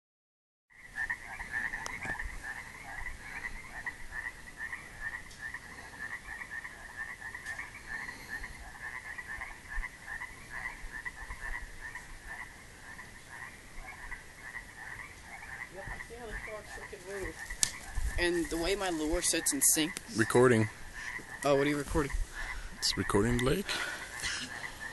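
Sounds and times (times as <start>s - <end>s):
frogs croaking: 0.7s - 24.9s.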